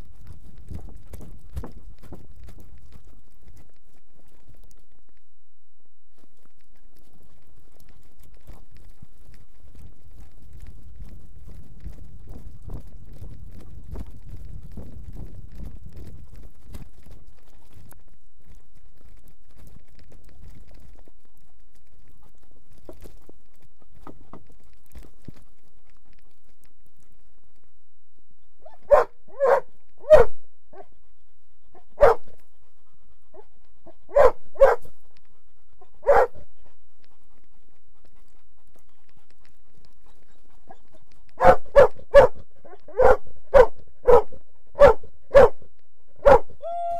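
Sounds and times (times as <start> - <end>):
dog barking: 28.6 - 30.9, 32.0 - 32.3, 34.1 - 34.9, 36.0 - 36.4, 41.4 - 45.6, 46.2 - 46.5.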